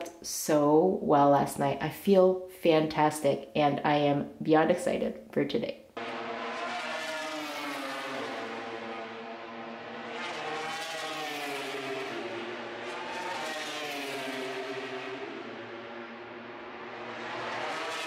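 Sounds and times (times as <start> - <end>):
racing motorcycle engines: 6.0 - 18.0.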